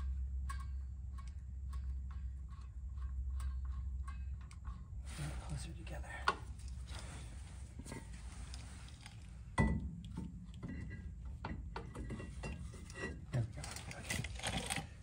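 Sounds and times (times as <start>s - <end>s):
small metallic clinks and scrapes: 0.0s - 15.0s.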